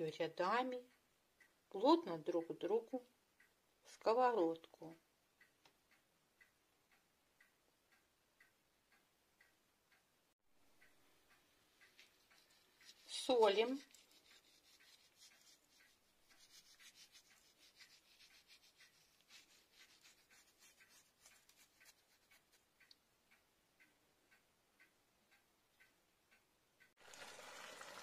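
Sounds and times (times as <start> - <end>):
light ticking: 0.3 - 27.0
fish sizzling in a pan: 27.0 - 28.0.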